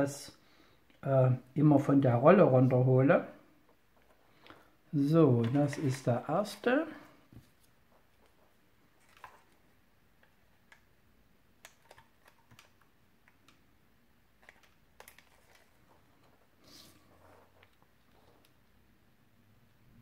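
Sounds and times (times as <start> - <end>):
soft paper rustle: 3.9 - 9.6, 14.4 - 18.7.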